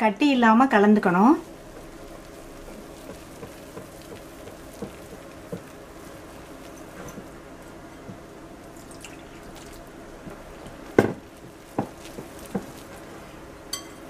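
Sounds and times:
whisk beating batter: 1.4s - 7.4s, 11.2s - 13.3s.

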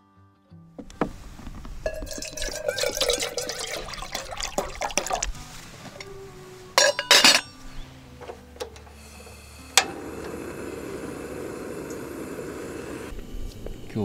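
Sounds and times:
gas burner hissing: 0.9s - 14.0s
pot and lid clinking: 1.8s - 5.4s, 6.7s - 7.6s
stove igniter click: 8.6s - 13.7s.

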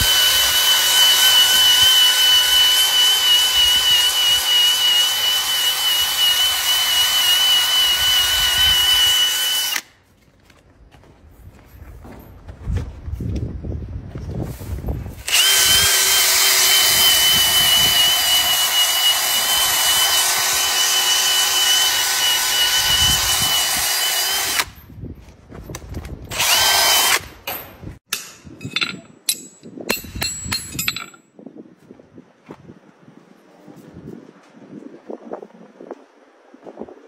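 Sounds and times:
power grinder whining: 0.0s - 9.9s, 15.2s - 24.8s, 26.3s - 27.2s.

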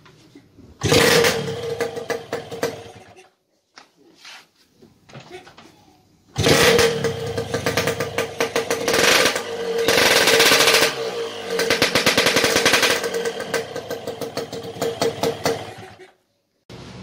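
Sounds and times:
motorcycle engine revving: 0.8s - 3.1s, 6.4s - 16.0s.

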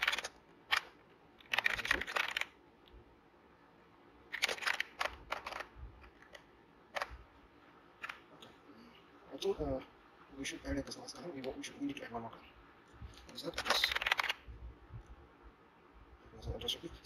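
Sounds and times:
computer keyboard typing: 0.0s - 2.6s, 4.3s - 7.1s, 13.6s - 14.4s.

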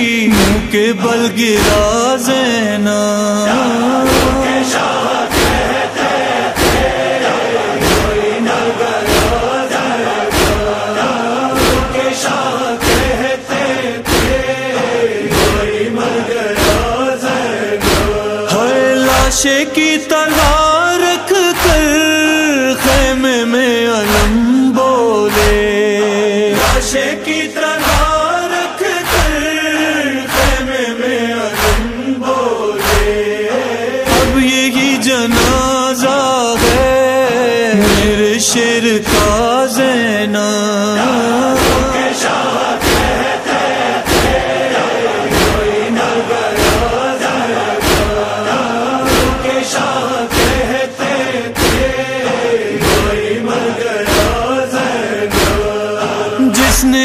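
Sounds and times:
loud regular beat: 0.0s - 0.8s, 1.5s - 2.1s, 4.1s - 8.4s, 9.1s - 9.6s, 10.2s - 10.9s, 11.6s - 14.6s, 15.2s - 15.8s, 16.6s - 18.4s, 20.3s - 20.8s, 21.6s - 22.1s, 22.8s - 23.2s, 24.1s - 24.6s, 25.3s - 25.8s, 27.8s - 28.3s, 29.1s - 29.6s, 30.3s - 30.8s, 31.6s - 32.0s, 34.1s - 34.6s, 35.3s - 35.8s, 36.6s - 37.0s, 37.7s - 38.3s, 39.0s - 39.5s, 41.6s - 47.1s, 47.7s - 49.6s, 50.3s - 52.1s, 52.8s - 53.3s, 55.3s - 57.0s
men chanting a lament: 0.0s - 57.0s
heavy drum beat: 0.3s - 0.8s, 1.6s - 2.0s, 4.1s - 4.6s, 5.3s - 5.8s, 6.6s - 7.1s, 7.8s - 8.4s, 9.1s - 9.6s, 10.3s - 10.8s, 11.6s - 12.0s, 12.8s - 13.3s, 15.3s - 15.8s, 16.6s - 17.0s, 17.8s - 18.3s, 34.1s - 34.5s, 35.3s - 35.8s, 37.8s - 38.3s, 39.1s - 39.4s, 41.6s - 42.1s, 42.8s - 43.3s, 44.1s - 44.6s, 45.3s - 45.9s, 46.6s - 47.0s, 47.8s - 48.4s, 49.1s - 49.5s, 52.8s - 53.3s.

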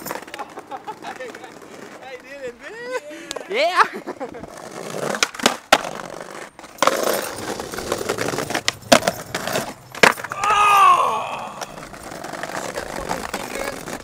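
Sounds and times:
skateboard clacks: 0.0s - 2.5s, 4.2s - 10.6s, 11.5s - 14.0s
skateboard wheels rolling on bricks: 0.0s - 14.0s
person yelling: 10.3s - 11.8s.

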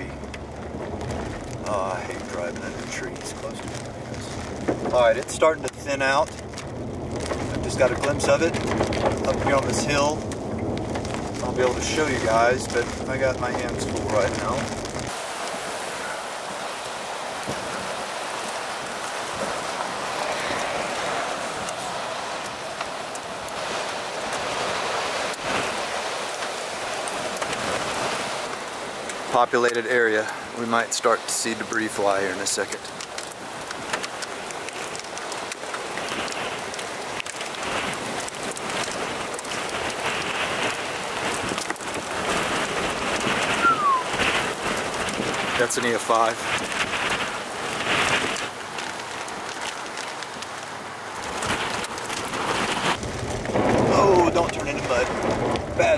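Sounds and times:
wind and rain hiss: 0.0s - 55.9s
brief falling tone: 43.6s - 44.1s.

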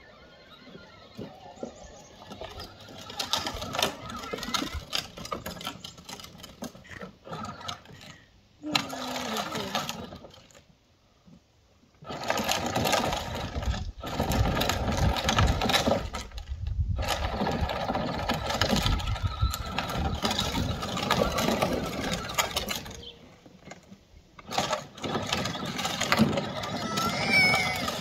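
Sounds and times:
electric motors whining: 0.0s - 10.5s, 12.0s - 28.0s
wheels crunching on gravel: 0.0s - 10.7s, 12.0s - 28.0s.

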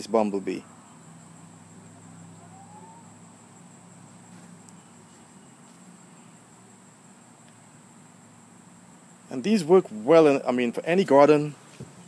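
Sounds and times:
steady low hum: 0.0s - 10.8s
high-pitched insect drone: 0.6s - 9.5s
faint rising whistle: 1.8s - 3.2s.

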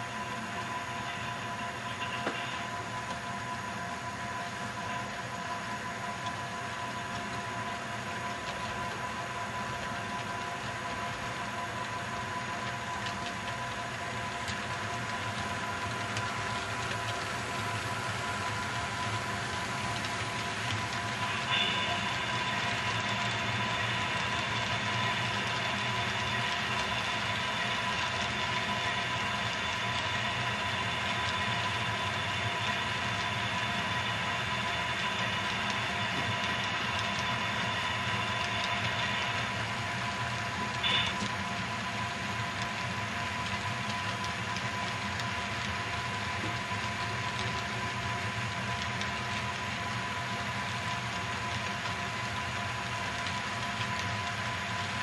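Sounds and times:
model train wheels rolling: 9.7s - 55.0s
thin high whine: 17.4s - 41.5s.

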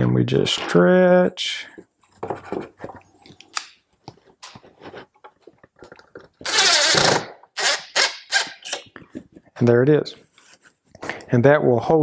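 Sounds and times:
wood clicking and creaking: 2.0s - 7.6s
cordless drill driving screw: 6.4s - 8.8s.

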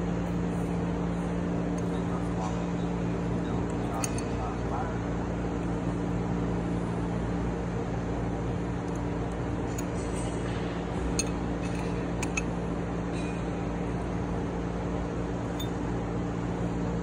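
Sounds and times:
machinery hum: 0.0s - 17.0s
metallic clinks of hand tools: 11.2s - 12.5s.

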